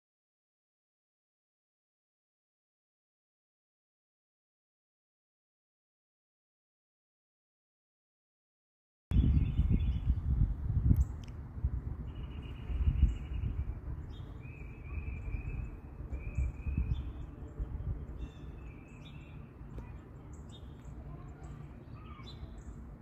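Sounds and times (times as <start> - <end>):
birds chirping and trilling: 9.1 - 23.0
steady low rumble: 9.1 - 23.0.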